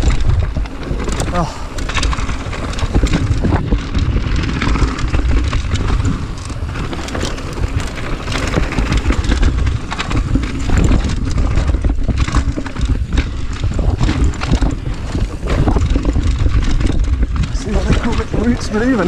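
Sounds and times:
bike rattling and knocking: 0.0s - 19.0s
tyres running over dirt: 0.0s - 19.0s
wind noise on microphone: 0.0s - 19.0s.

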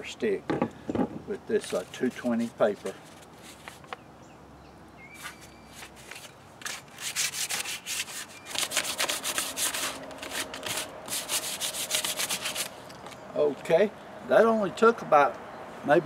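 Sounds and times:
sandpaper rubbing on wood: 5.2s - 12.8s.

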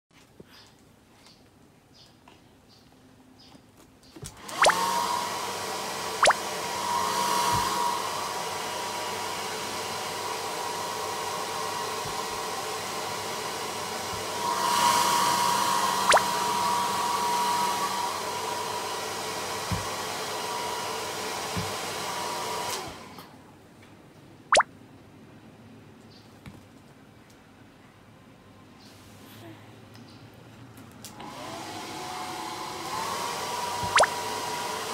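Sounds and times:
hair dryer running: 4.3s - 23.3s, 31.1s - 34.9s
hair dryer switch: 4.4s - 23.0s, 31.1s - 32.0s, 32.6s - 34.9s
downward-sliding blips: 16.1s - 16.3s, 33.8s - 34.1s.

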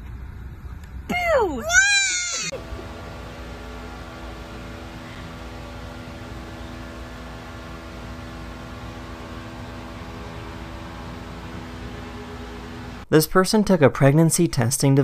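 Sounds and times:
steady hum of held tones: 0.0s - 13.1s.

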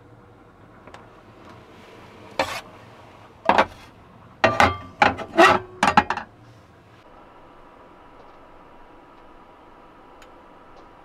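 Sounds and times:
metal cookware clattering: 3.5s - 3.8s, 4.4s - 6.3s.

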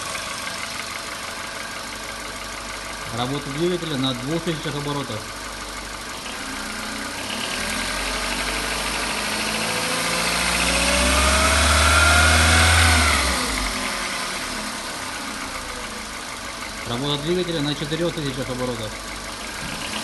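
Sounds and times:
car engine revving: 5.9s - 20.0s.

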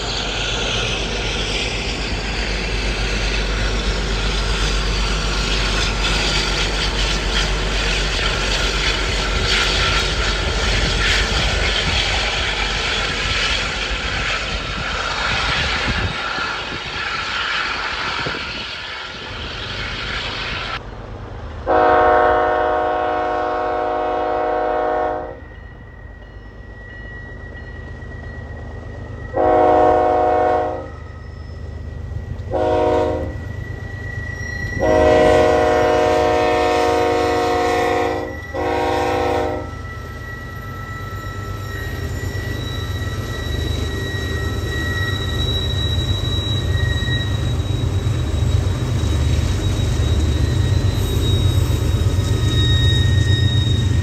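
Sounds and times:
freight train rumbling past: 0.0s - 54.0s
locomotive air horn: 21.7s - 25.4s, 29.4s - 30.9s, 32.5s - 33.4s, 34.8s - 39.8s.

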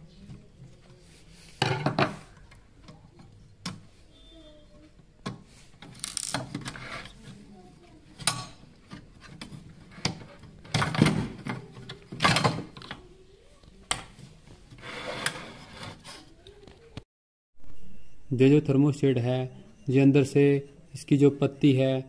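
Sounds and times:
metal parts clicking and knocking: 5.8s - 6.6s.

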